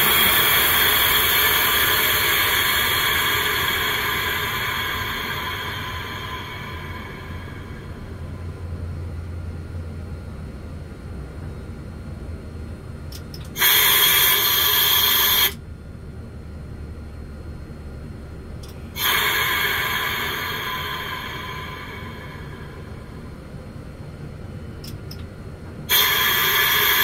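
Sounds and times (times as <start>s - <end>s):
compressed air hissing: 0.0s - 8.3s, 13.6s - 15.6s, 18.9s - 23.4s, 25.9s - 27.0s
low steady hum: 0.0s - 27.0s.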